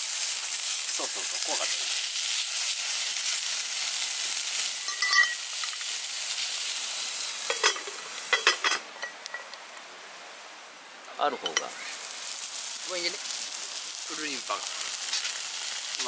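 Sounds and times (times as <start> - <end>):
food sizzling in a pan: 0.0 - 16.0
short metallic ring: 4.9 - 5.4.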